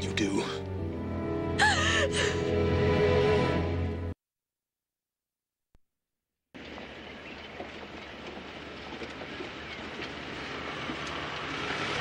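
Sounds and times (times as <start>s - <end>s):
tyres crackling on dirt: 6.6s - 12.0s.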